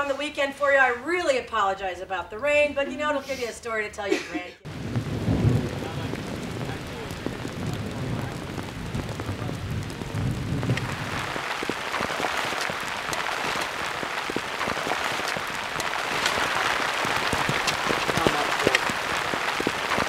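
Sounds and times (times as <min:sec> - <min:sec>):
steady rain: 0:04.6 - 0:20.0.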